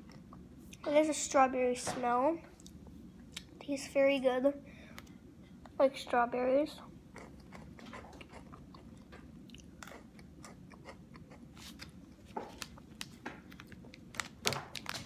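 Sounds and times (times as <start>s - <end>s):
plastic packet rustling: 11.6s - 15.0s.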